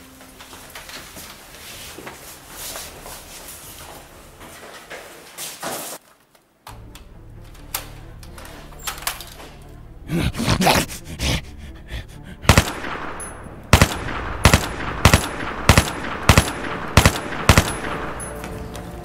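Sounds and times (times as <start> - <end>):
rifle gunshots with echo: 12.4 - 18.5.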